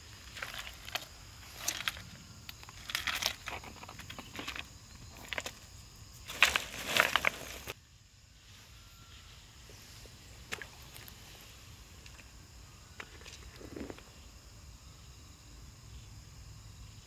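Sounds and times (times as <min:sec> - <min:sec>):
sharp knocks and scrapes: 0:00.3 - 0:05.6.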